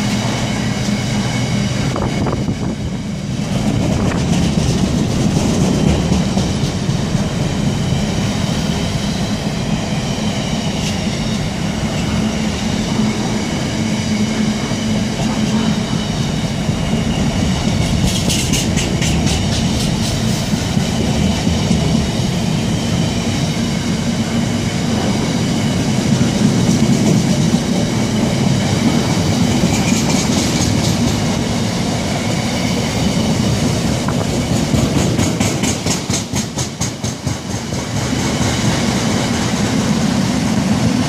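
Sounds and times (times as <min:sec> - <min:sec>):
train wheels rumbling on rail: 0:00.0 - 0:41.0
wheels clicking over rail joints: 0:03.4 - 0:07.4, 0:17.7 - 0:22.0, 0:26.1 - 0:31.5, 0:33.8 - 0:38.8.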